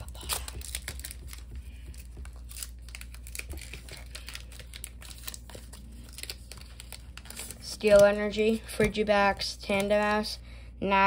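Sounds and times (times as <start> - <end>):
foil wrapper crinkling and tearing: 0.0 - 8.1.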